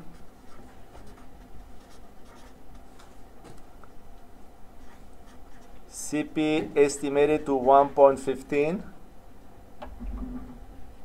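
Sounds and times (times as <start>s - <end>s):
marker scratching on paper: 0.0s - 3.2s, 4.8s - 6.1s.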